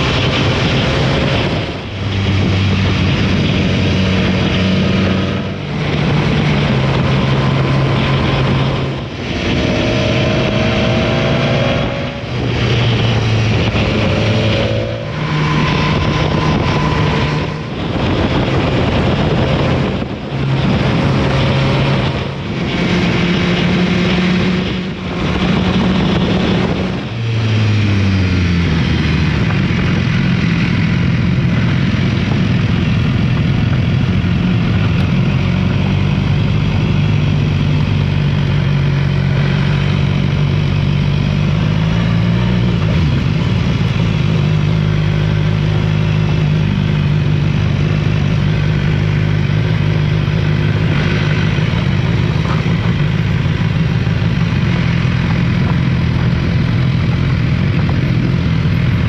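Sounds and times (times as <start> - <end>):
wind rush: 0.0 - 38.1
motorcycle engine running: 0.0 - 59.0.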